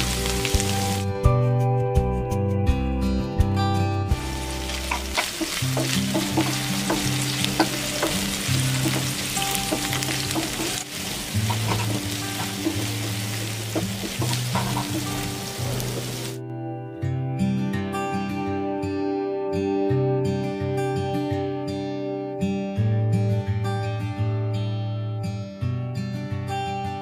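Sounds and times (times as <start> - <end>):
onions sizzling in hot oil: 0.0 - 1.1, 4.2 - 16.4
spatula scraping a pan: 4.7 - 16.2.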